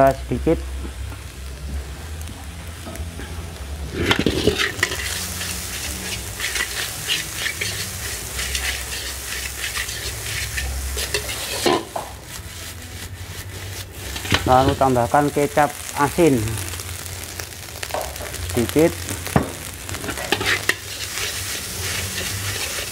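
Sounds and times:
rice sizzling: 0:00.0 - 0:22.9
metal ladle scraping a wok: 0:02.8 - 0:15.9, 0:19.0 - 0:22.9
steady low rumble: 0:13.8 - 0:22.5.

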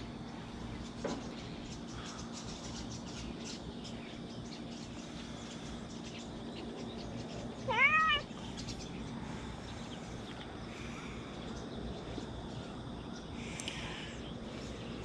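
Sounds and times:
cat meowing: 0:07.7 - 0:08.3.

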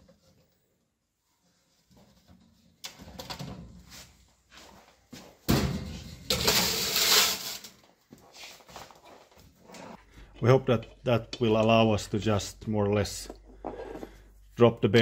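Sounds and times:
loud scraping and clattering: 0:06.3 - 0:07.7.

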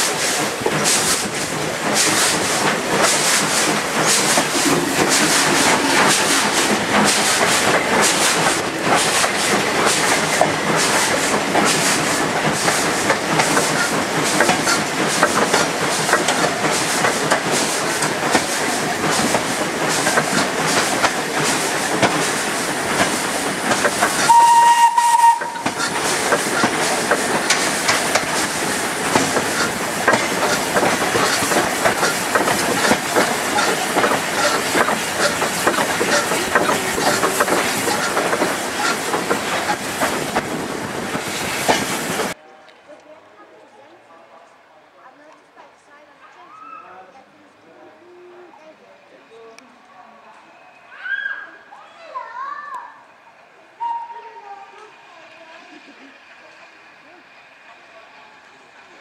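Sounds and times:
steam locomotive chuffing: 0:00.0 - 0:42.4
steam whistle blast: 0:24.2 - 0:25.8, 0:53.8 - 0:54.4.

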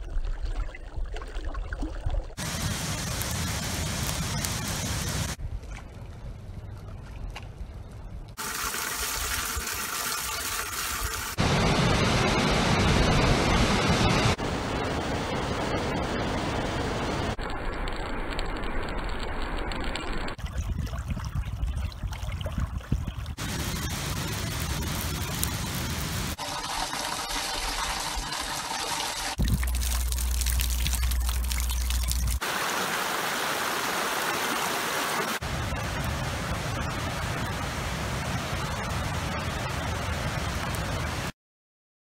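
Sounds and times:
falling water: 0:00.0 - 0:05.4, 0:08.4 - 0:39.0
streams running: 0:16.0 - 0:35.6.

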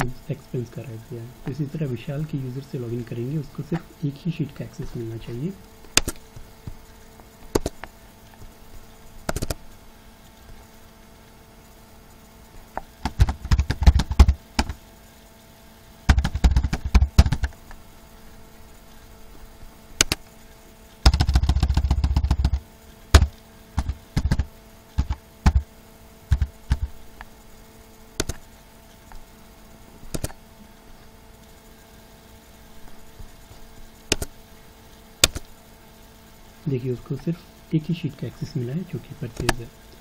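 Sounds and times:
keyboard typing: 0:07.5 - 0:07.8, 0:09.3 - 0:09.6, 0:13.0 - 0:14.8, 0:16.1 - 0:17.6, 0:20.0 - 0:20.2, 0:21.0 - 0:25.7, 0:26.3 - 0:26.9, 0:28.2 - 0:28.5, 0:30.1 - 0:30.4, 0:34.1 - 0:34.3, 0:35.2 - 0:35.5.

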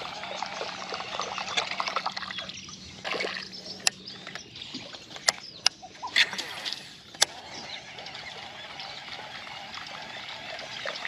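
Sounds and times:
water trickling and dripping: 0:00.0 - 0:05.0.

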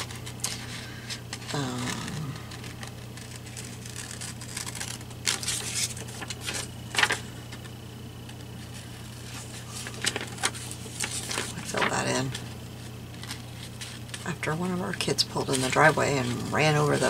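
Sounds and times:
paper rustling: 0:00.0 - 0:17.0
scissors snipping paper: 0:02.5 - 0:07.1.

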